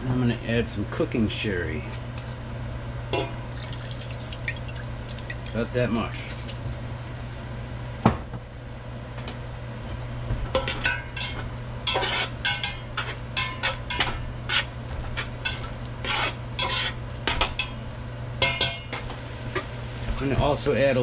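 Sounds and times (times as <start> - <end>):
steady low hum: 0.0 - 21.0
metal spatula scraping a pot: 11.2 - 17.0.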